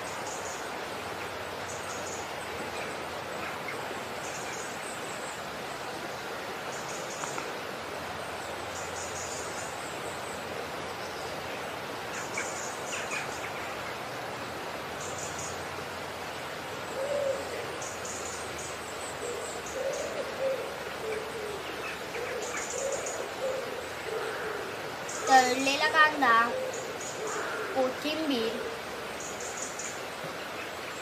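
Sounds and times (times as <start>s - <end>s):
steady hiss: 0.0s - 31.0s
bird hooting: 16.9s - 17.8s, 19.2s - 29.0s.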